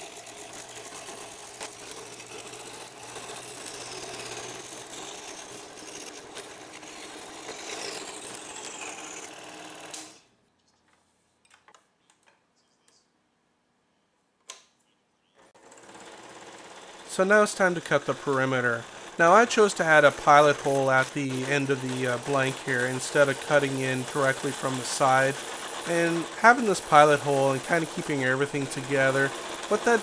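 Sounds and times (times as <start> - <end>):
scroll saw buzzing: 0.0 - 10.3, 15.6 - 30.0.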